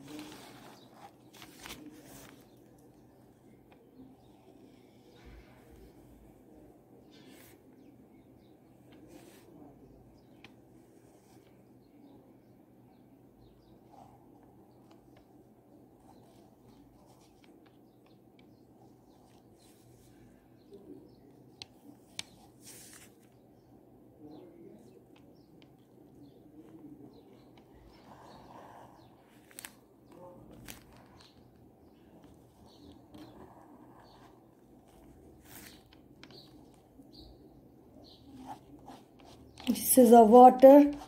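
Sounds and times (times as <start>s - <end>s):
ballpoint pen scratching on paper: 32.2s - 36.9s, 38.0s - 39.8s.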